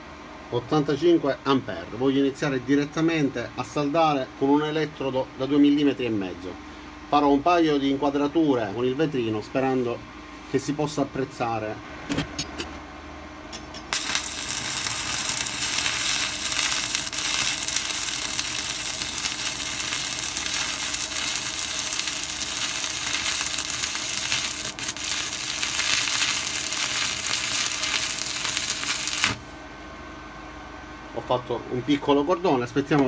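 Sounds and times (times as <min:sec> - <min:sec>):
welding arc burning: 0:13.9 - 0:29.6.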